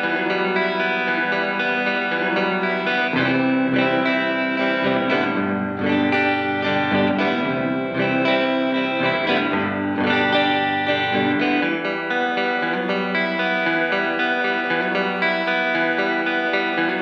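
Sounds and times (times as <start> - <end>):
electric guitar with reverb: 0.0 - 17.0.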